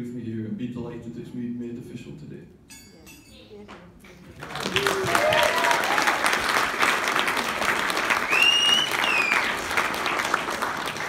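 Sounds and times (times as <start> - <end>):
crowd applauding: 4.3 - 11.0.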